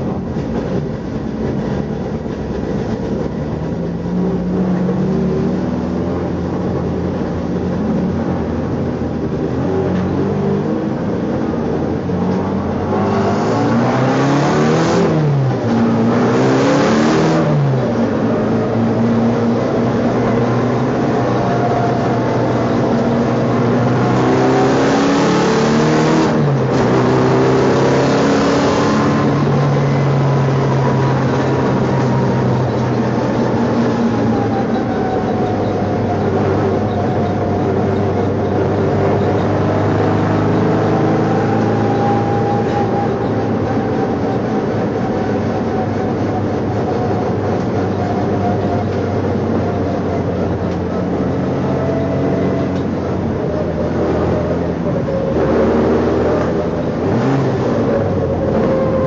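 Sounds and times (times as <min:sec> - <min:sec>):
race car engine revving: 0:00.0 - 0:59.0
road and wind noise: 0:00.0 - 0:59.0.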